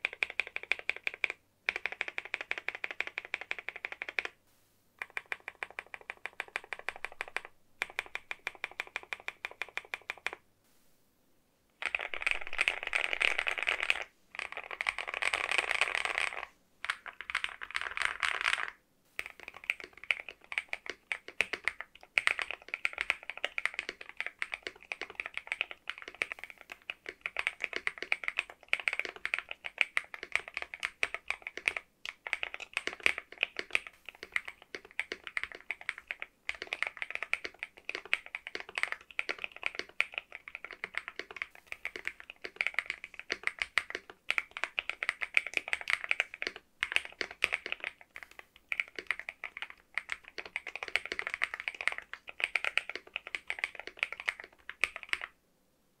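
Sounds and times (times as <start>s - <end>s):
mechanical keyboard typing: 0.0s - 4.4s, 5.0s - 10.4s, 11.8s - 55.4s.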